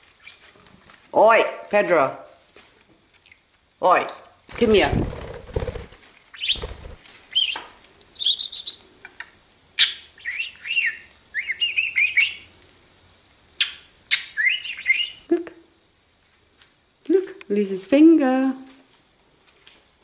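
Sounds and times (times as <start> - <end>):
budgerigar chirping: 6.3 - 7.6, 8.2 - 8.8, 9.8 - 12.5, 13.6 - 15.2.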